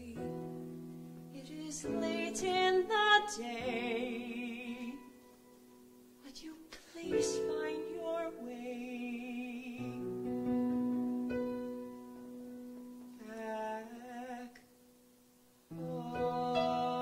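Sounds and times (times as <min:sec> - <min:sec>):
musical theatre ballad: 0:00.0 - 0:14.8, 0:15.7 - 0:17.0.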